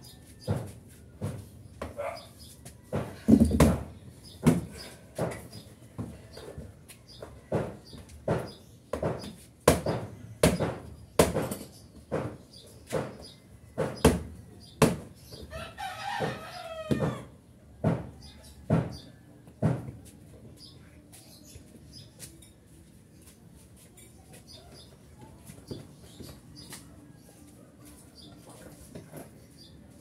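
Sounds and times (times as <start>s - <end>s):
sharp knocks: 7.5s - 15.1s
rooster crowing: 15.5s - 17.3s.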